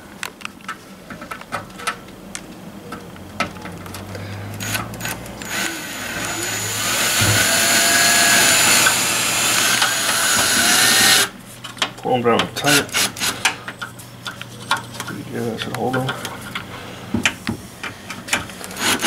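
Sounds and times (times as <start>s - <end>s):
cordless drill driving a screw: 4.6s - 11.3s.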